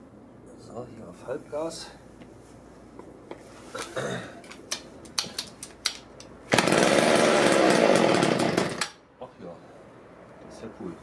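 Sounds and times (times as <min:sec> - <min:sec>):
chainsaw starter clicks and rattles: 0:05.2 - 0:09.0
chainsaw engine running: 0:06.5 - 0:09.0.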